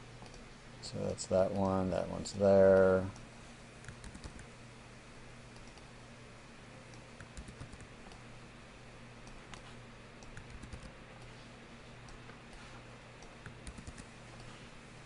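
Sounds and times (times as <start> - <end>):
low steady hum: 0.0 - 15.0
keyboard and mouse clicks: 3.8 - 4.5, 6.9 - 8.2, 9.2 - 11.0, 13.2 - 14.5.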